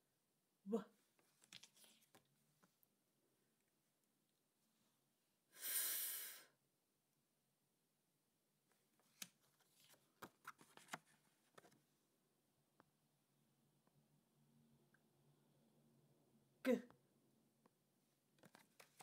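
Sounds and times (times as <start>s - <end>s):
paper flashcards tapping and rustling: 1.2s - 2.2s, 9.0s - 11.8s, 18.4s - 19.0s
person voicing breathy fff hiss: 5.5s - 6.6s.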